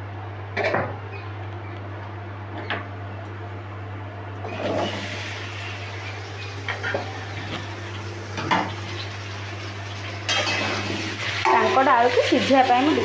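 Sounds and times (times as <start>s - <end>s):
steady low hum: 0.0s - 13.0s
food sizzling in hot oil: 4.5s - 13.0s.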